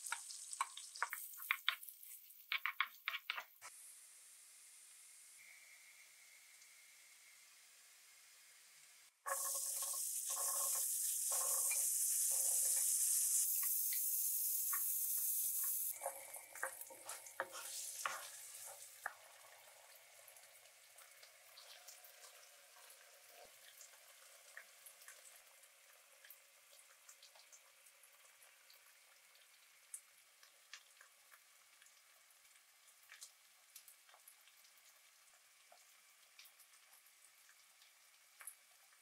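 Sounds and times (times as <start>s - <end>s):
spatula stirring and scraping: 0.0s - 3.7s, 15.9s - 19.2s
frying crackle with small pops: 0.0s - 3.9s, 9.2s - 39.0s
loud high sizzle: 3.6s - 16.4s.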